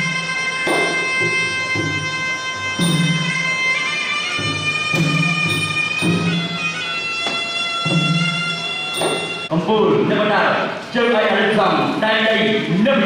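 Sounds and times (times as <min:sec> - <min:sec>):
drum strokes: 0:00.0 - 0:09.5
reed oboe melody: 0:00.0 - 0:09.5.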